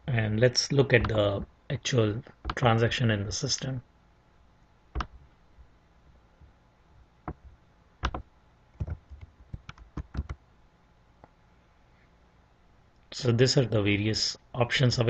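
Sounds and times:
computer keyboard clicks: 5.0s - 5.2s, 8.0s - 8.2s, 8.8s - 10.4s.

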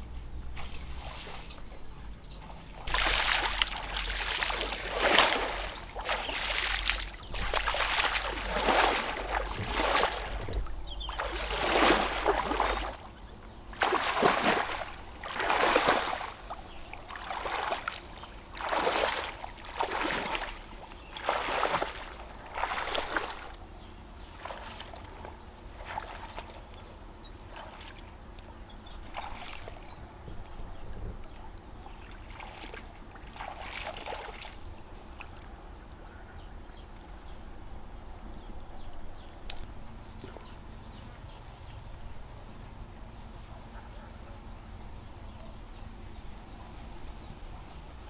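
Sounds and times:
water splashing strokes: 0.5s - 1.8s, 2.7s - 23.6s, 32.0s - 35.4s.

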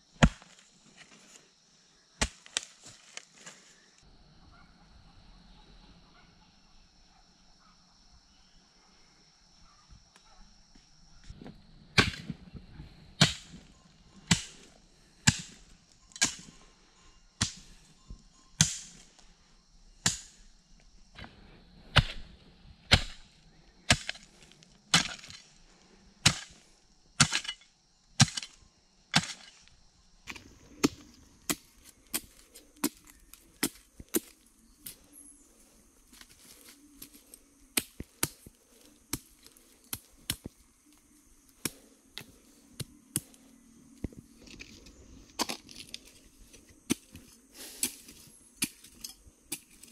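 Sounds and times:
hoe chopping into earth: 0.2s - 0.6s, 2.2s - 2.7s, 12.0s - 12.4s, 13.2s - 16.5s, 17.4s - 17.8s, 18.6s - 19.1s, 20.0s - 20.5s, 21.9s - 24.3s, 24.9s - 25.5s, 26.2s - 29.7s, 30.3s - 35.0s.

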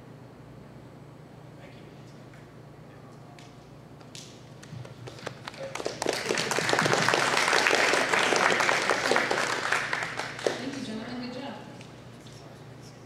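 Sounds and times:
audience applauding: 4.6s - 11.0s.

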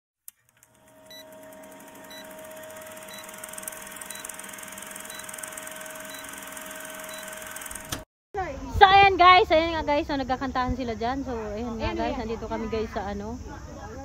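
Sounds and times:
film projector clatter: 0.3s - 8.1s
short high beeps: 1.1s - 1.4s, 2.1s - 2.4s, 3.0s - 7.7s.

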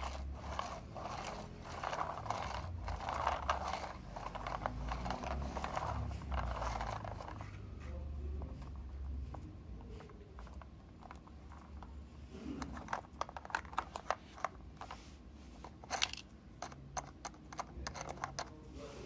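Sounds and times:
plastic toy truck clicking: 0.0s - 7.4s, 12.6s - 14.6s, 15.9s - 18.6s.

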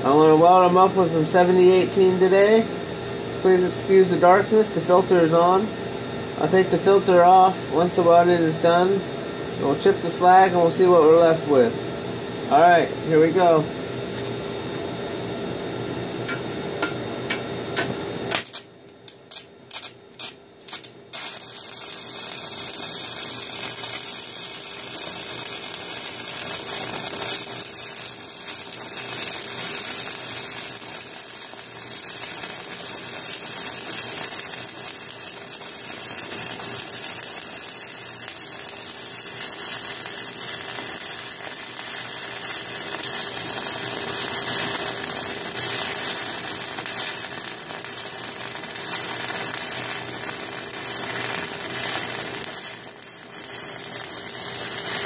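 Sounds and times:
welding arc crackling sizzle: 0.0s - 14.4s, 16.1s - 55.0s
welder hum: 0.0s - 55.0s.

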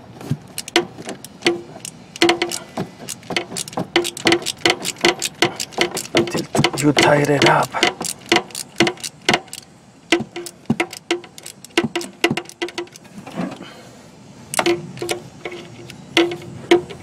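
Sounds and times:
socket ratchet clicking: 0.5s - 13.0s.

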